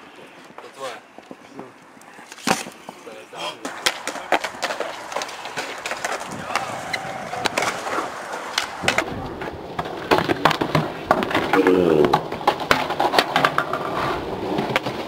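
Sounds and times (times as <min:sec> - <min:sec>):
wheels clattering on concrete: 0:02.3 - 0:15.0
metal and decks hitting ground: 0:03.6 - 0:13.8.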